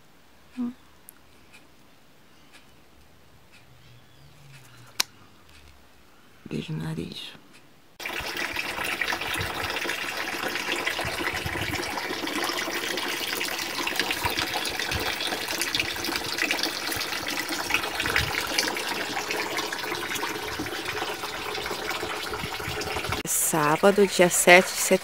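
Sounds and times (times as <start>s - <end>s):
water running from a tap: 8.0s - 25.0s.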